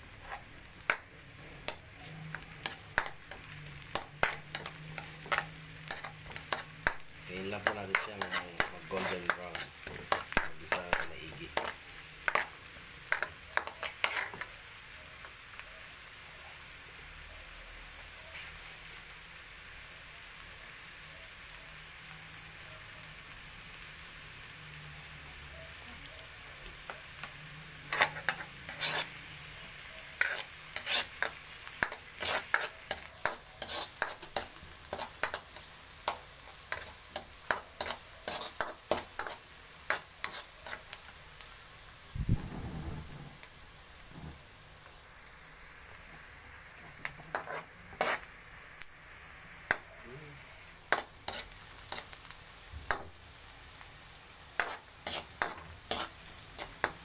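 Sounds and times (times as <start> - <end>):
onion sizzling in hot oil: 0.0 - 57.0
metal spatula scraping wok: 0.1 - 0.5, 1.4 - 14.5, 27.2 - 41.0, 46.8 - 48.3, 50.9 - 52.2, 54.5 - 57.0.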